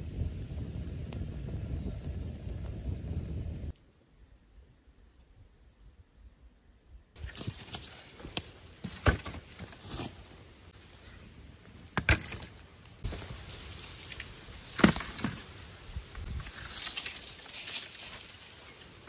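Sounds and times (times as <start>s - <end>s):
dry wooden branches clattering: 7.2s - 19.0s.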